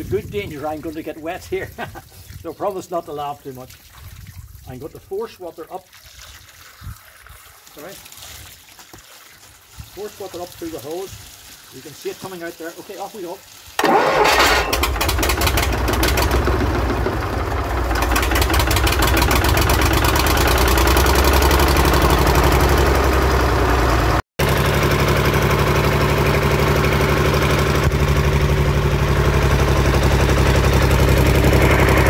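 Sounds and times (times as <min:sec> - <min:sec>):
diesel engine running: 0:13.8 - 0:32.0.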